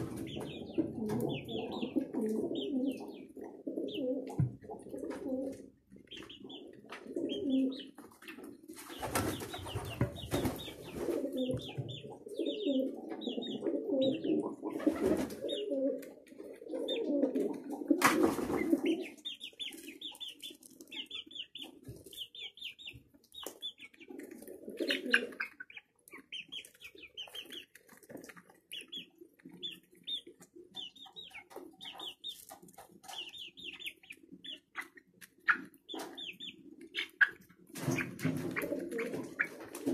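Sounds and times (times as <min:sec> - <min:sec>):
pigeons cooing: 0:00.0 - 0:39.9
wings flapping: 0:08.7 - 0:11.8, 0:14.7 - 0:16.0, 0:17.9 - 0:19.1, 0:37.2 - 0:39.9.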